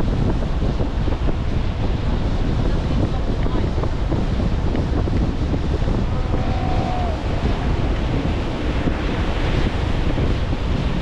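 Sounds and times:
wind buffeting microphone: 0:00.0 - 0:11.0
ocean surf breaking: 0:05.2 - 0:11.0.

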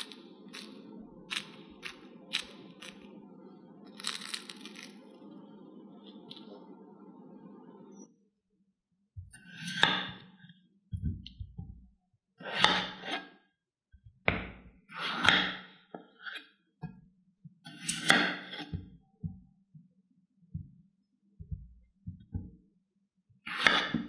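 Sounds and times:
knife slicing potatoes on board: 0:09.4 - 0:10.2, 0:12.4 - 0:13.3, 0:14.9 - 0:16.4, 0:17.7 - 0:18.8, 0:23.5 - 0:24.0.

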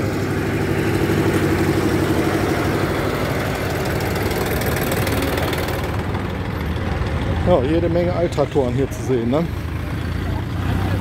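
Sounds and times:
diesel locomotive engine: 0:00.0 - 0:11.0
old tractor engine running: 0:00.0 - 0:11.0.

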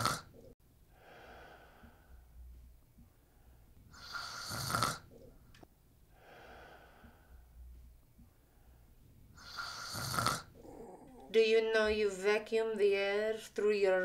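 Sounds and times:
person snoring: 0:00.0 - 0:00.4, 0:03.9 - 0:05.1, 0:09.4 - 0:11.3
soft breath out: 0:00.9 - 0:02.4, 0:06.1 - 0:07.6.

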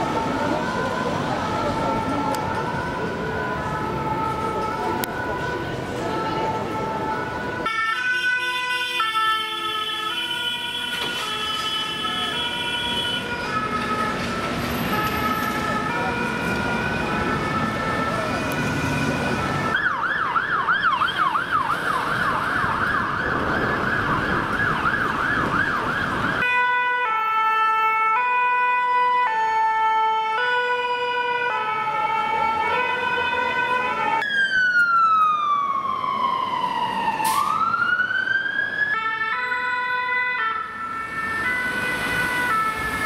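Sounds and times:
traffic noise: 0:00.0 - 0:43.0
wailing siren: 0:00.0 - 0:43.0
two-tone siren: 0:06.2 - 0:43.0
yelp siren: 0:14.9 - 0:43.0.

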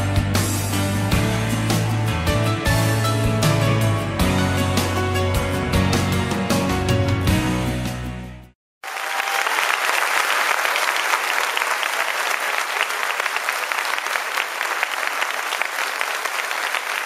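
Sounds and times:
large audience applauding: 0:08.8 - 0:17.0.

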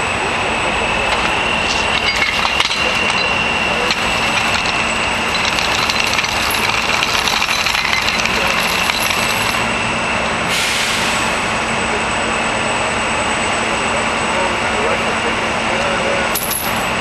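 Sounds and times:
engine drone: 0:00.0 - 0:17.0
hiss: 0:10.5 - 0:11.5.

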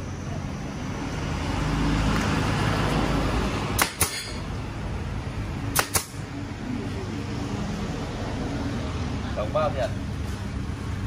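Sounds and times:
staple gun firing: 0:05.7 - 0:06.2.

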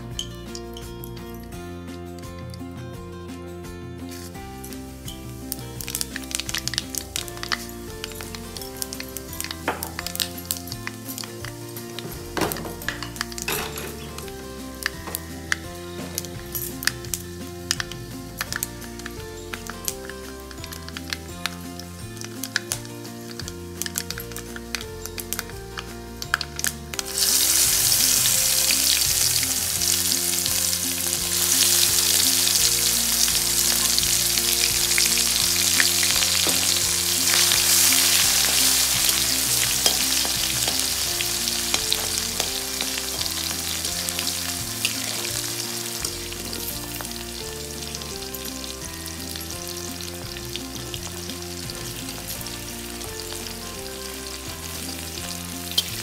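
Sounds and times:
onions sizzling in hot oil: 0:04.1 - 0:56.0
metal spatula stirring: 0:28.5 - 0:48.3.

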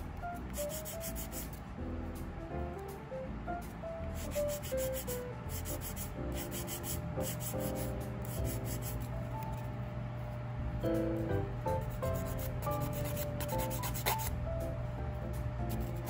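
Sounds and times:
soft background music: 0:00.0 - 0:16.0
nail file rasping: 0:00.5 - 0:01.6, 0:04.2 - 0:09.6, 0:12.0 - 0:14.3.

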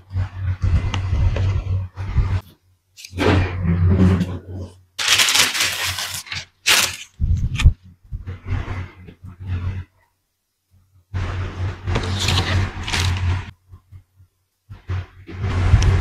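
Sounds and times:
plastic packaging crinkling: 0:05.0 - 0:07.2, 0:12.0 - 0:13.5.

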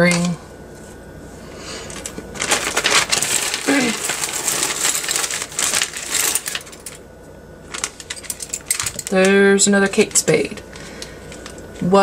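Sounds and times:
plastic bag crinkling: 0:01.9 - 0:07.0, 0:07.6 - 0:09.3, 0:09.9 - 0:11.9
jewelry clinking and jingling: 0:03.4 - 0:07.0, 0:07.7 - 0:09.2.

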